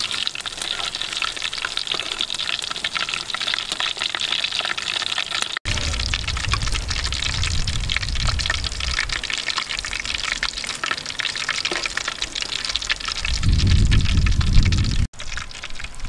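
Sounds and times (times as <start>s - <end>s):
fritters deep-frying in oil: 0.0s - 16.0s
low rumble: 5.7s - 9.3s, 13.2s - 15.1s.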